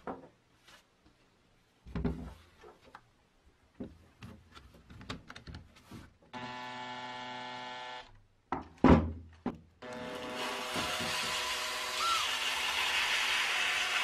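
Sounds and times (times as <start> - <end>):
cordless drill running: 6.4 - 8.1, 9.8 - 14.0.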